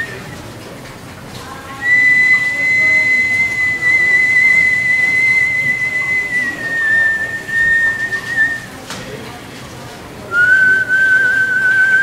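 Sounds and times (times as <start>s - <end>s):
man whistling a high note: 1.8s - 8.7s, 10.3s - 12.0s.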